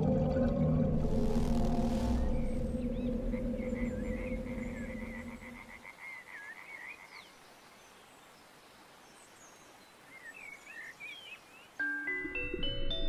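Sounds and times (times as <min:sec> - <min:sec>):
soft steady hiss: 0:00.9 - 0:12.1
bird chirps and warbles: 0:01.4 - 0:12.2.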